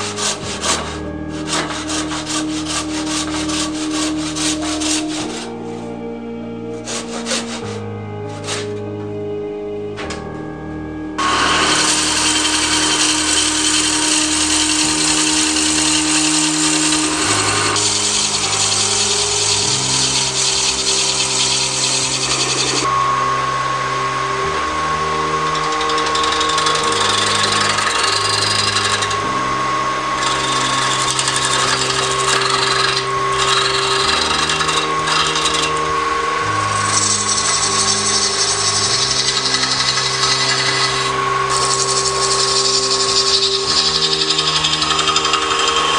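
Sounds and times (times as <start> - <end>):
gouge scraping shavings off wood: 0.0 - 5.6, 6.8 - 8.8, 25.5 - 29.3, 30.2 - 45.9
wood lathe spinning: 0.0 - 10.5, 11.2 - 45.9.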